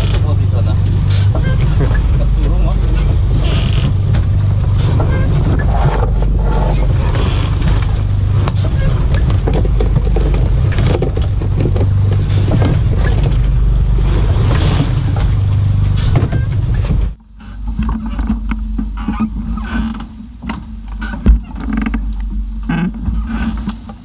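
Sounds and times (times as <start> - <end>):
boat engine rumbling: 0.0 - 24.0
rushing wind: 0.0 - 24.0
scattered knocks: 15.1 - 24.0.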